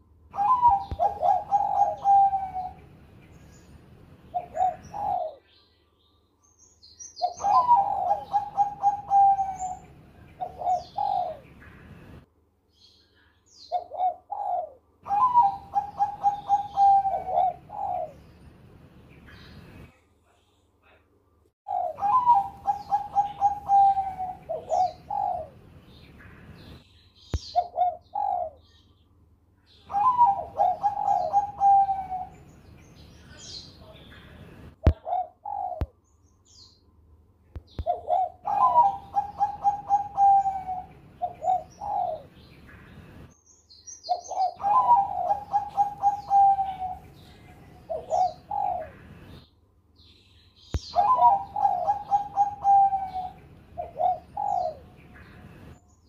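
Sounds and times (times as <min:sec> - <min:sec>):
dove cooing: 0:00.0 - 0:02.9, 0:04.3 - 0:05.5, 0:07.2 - 0:11.8, 0:13.6 - 0:18.2, 0:21.7 - 0:25.6, 0:27.4 - 0:28.7, 0:29.9 - 0:32.5, 0:34.8 - 0:36.0, 0:37.7 - 0:42.5, 0:44.1 - 0:49.4, 0:50.8 - 0:55.8.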